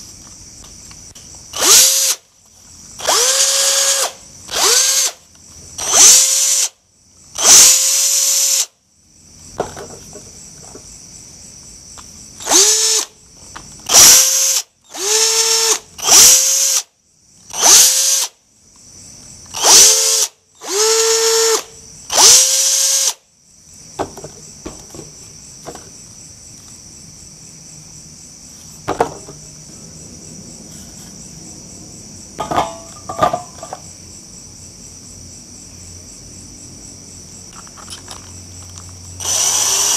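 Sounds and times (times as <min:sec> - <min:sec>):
crickets chirring: 0:00.0 - 0:39.9
cordless drill whining: 0:01.5 - 0:02.2, 0:03.0 - 0:05.2, 0:05.8 - 0:06.7, 0:07.4 - 0:08.7, 0:12.4 - 0:13.1, 0:13.8 - 0:16.9, 0:17.5 - 0:18.3, 0:19.5 - 0:23.2, 0:39.2 - 0:39.9.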